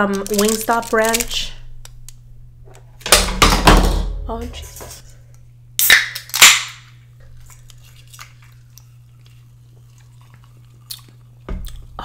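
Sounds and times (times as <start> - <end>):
can pull tab cracking open: 5.8 - 6.7.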